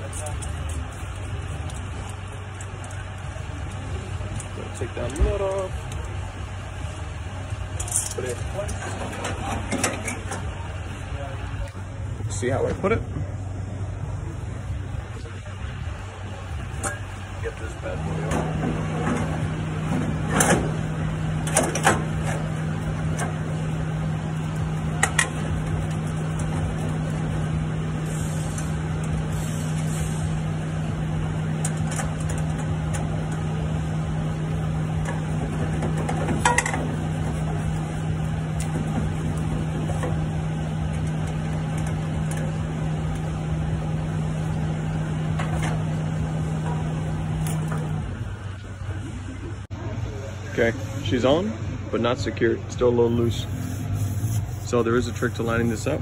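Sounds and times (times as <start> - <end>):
steady machine hum: 0.0 - 56.0
metal clanks and knocks: 7.8 - 10.5, 18.2 - 23.5, 35.0 - 37.7.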